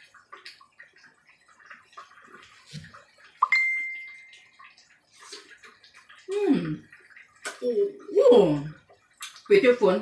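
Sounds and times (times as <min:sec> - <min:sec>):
soup bubbling in a pan: 0:00.0 - 0:10.0.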